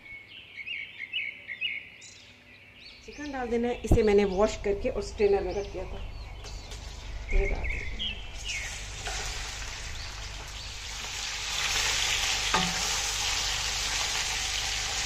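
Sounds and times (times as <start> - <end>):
chicken frying in hot oil: 8.3 - 15.0.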